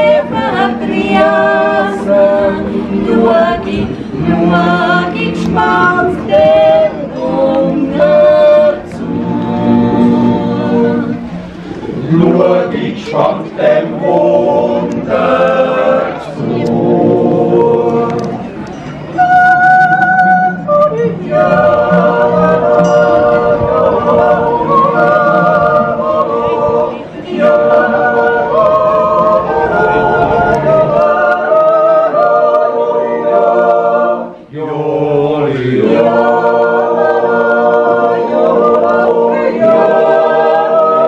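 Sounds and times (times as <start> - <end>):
choir singing unaccompanied: 0.0 - 41.0.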